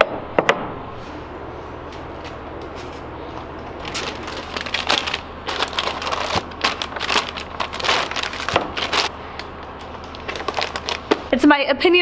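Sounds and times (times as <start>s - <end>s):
plastic packaging crinkling: 3.5s - 11.3s.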